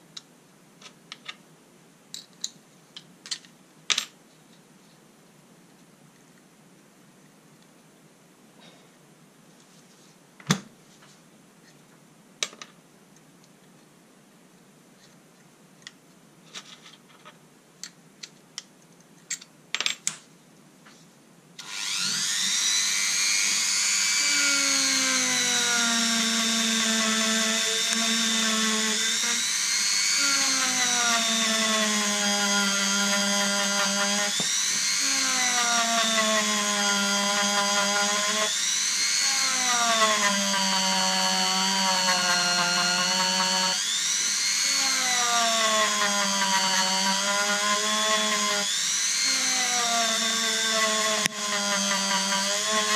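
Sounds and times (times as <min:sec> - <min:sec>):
rotary tool whining: 0:21.6 - 0:52.9.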